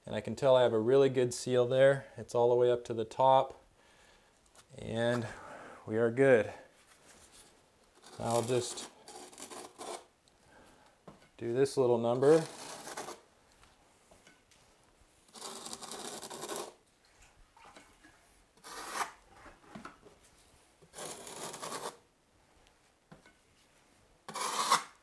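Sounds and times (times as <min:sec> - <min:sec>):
trowel scraping mortar: 0:08.0 - 0:10.1, 0:12.1 - 0:13.2, 0:15.3 - 0:16.8, 0:18.6 - 0:19.3, 0:20.8 - 0:22.0, 0:24.3 - 0:25.0.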